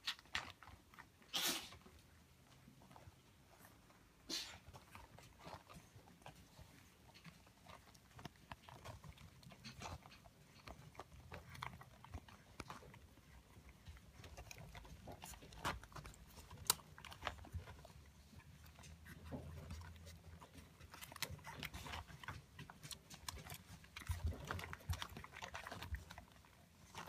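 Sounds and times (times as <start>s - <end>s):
puppies suckling wet smacking: 0.0s - 27.0s.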